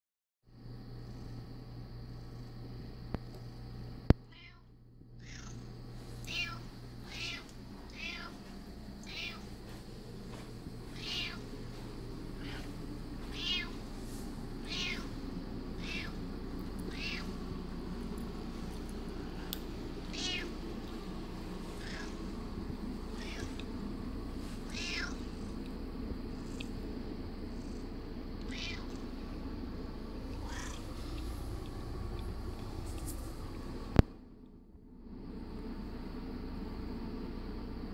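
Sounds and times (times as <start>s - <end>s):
cat meowing: 4.3s - 5.6s, 6.2s - 9.5s, 10.9s - 11.5s, 12.4s - 13.8s, 14.6s - 15.2s, 15.8s - 16.2s, 16.8s - 17.3s, 20.0s - 20.6s, 21.7s - 22.2s, 23.0s - 23.7s, 24.7s - 25.4s, 28.4s - 29.0s, 30.3s - 31.6s.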